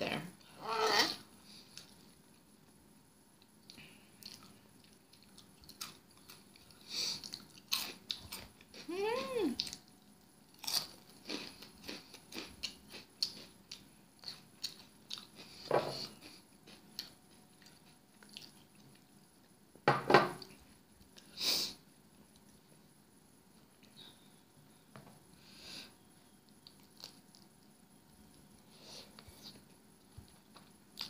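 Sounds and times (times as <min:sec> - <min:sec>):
crunching and chewing snacks: 0:03.6 - 0:08.9, 0:09.6 - 0:19.2, 0:26.5 - 0:28.5.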